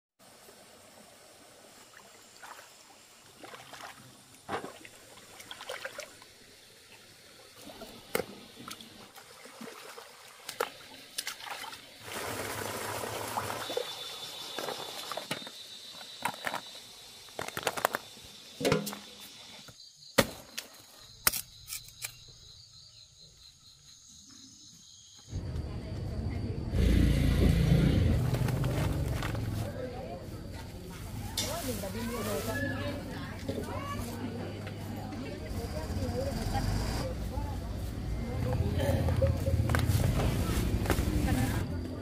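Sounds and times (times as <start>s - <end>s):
gush of water: 0.2s - 15.3s
hands splashing in water and mud: 8.1s - 11.9s.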